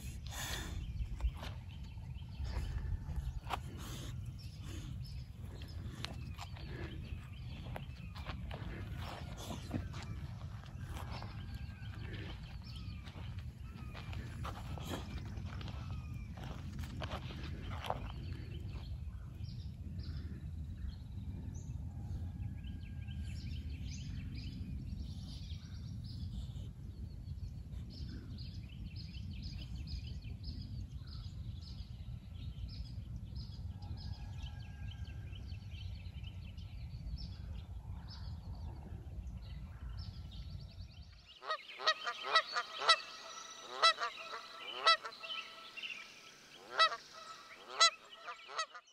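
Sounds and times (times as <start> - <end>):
small birds chirping: 0.0 - 21.1, 36.0 - 48.9
geese honking: 41.4 - 45.9, 46.6 - 48.8.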